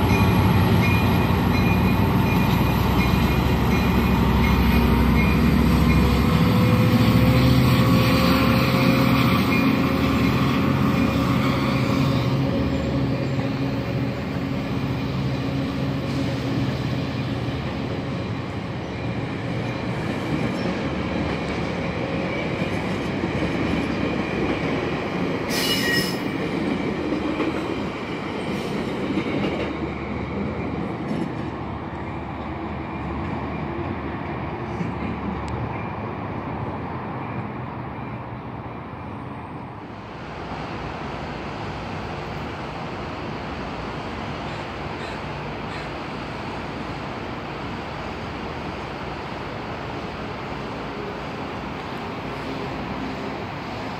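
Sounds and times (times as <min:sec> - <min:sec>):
diesel locomotive humming: 0:00.0 - 0:53.9
train wheels rumbling on rails: 0:00.0 - 0:53.9
high squeal: 0:25.5 - 0:26.3.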